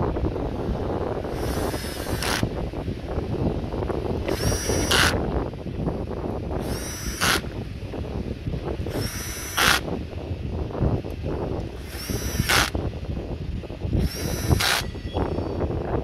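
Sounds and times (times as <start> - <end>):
power tool motor whine: 1.3 - 2.6, 4.2 - 5.2, 6.6 - 7.5, 8.9 - 9.9, 11.7 - 12.8, 14.0 - 15.6.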